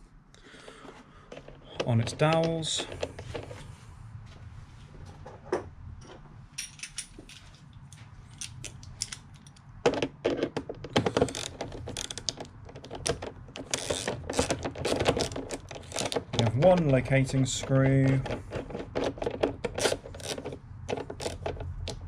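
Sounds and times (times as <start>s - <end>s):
hand ratchet clicking: 13.7s - 17.0s.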